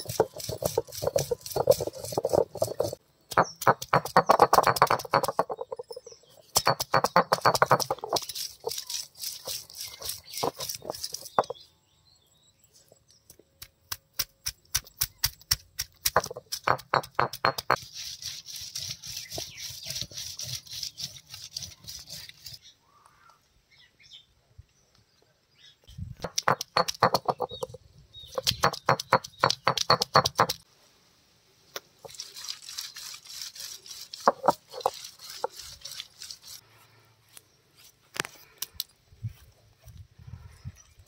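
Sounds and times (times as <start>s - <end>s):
stone roller grinding on slab: 0.0s - 3.0s, 3.7s - 6.0s, 6.6s - 11.6s, 32.9s - 36.6s.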